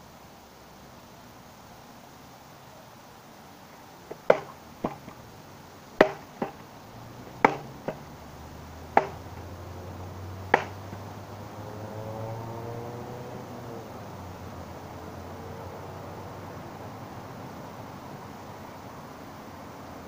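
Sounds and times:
stick being struck: 4.1s - 5.2s, 6.0s - 8.1s, 8.9s - 9.6s, 10.4s - 11.1s.

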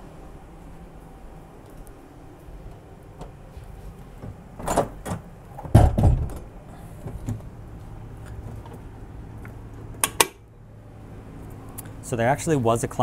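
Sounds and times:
heavy door thud: 4.2s - 7.4s
door opening and shutting: 4.2s - 7.5s.

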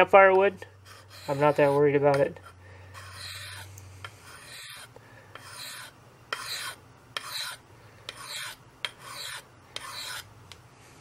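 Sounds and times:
hatchet scraping on sharpening plate: 0.9s - 10.3s.

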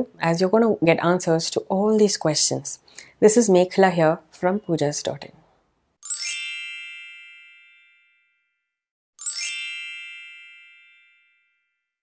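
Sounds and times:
high-pitched bell ringing: 6.0s - 8.6s, 9.2s - 11.9s.

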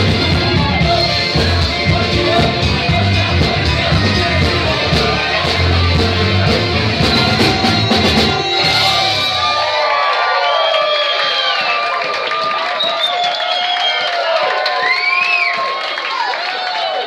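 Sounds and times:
bass and drum beat: 0.0s - 9.6s
lead singer: 0.0s - 9.6s
funk band playing: 0.0s - 9.8s
horn section: 0.0s - 10.0s.

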